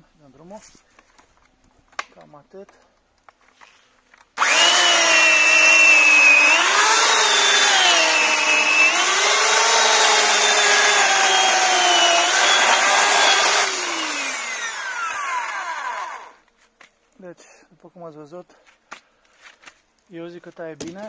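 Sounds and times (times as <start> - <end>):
electric chainsaw cutting wood: 4.4 - 16.4.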